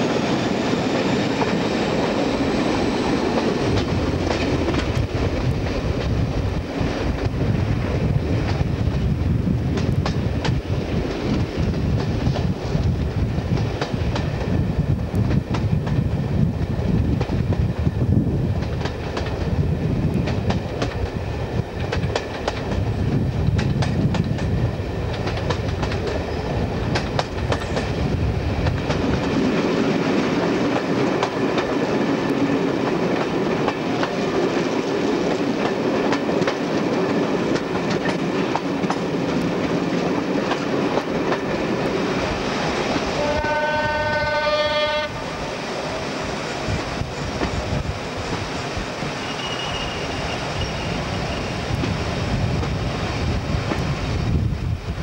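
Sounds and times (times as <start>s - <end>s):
train coaches rumbling: 0.0s - 55.0s
wheels clicking over rail joints: 23.5s - 28.0s, 28.6s - 42.0s.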